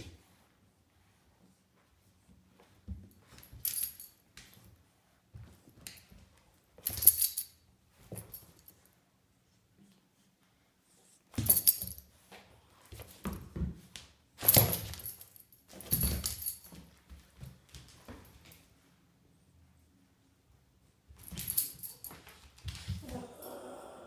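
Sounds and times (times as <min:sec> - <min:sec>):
soft scuffles and thumps on tile: 0:00.0 - 0:07.1, 0:07.8 - 0:08.8, 0:11.2 - 0:18.9, 0:21.1 - 0:23.2.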